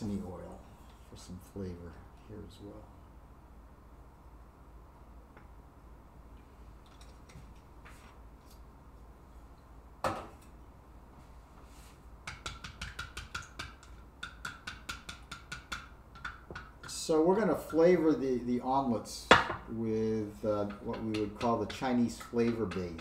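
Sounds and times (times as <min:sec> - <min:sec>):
chopsticks beating eggs in bowl: 0:12.3 - 0:18.0, 0:20.3 - 0:23.0.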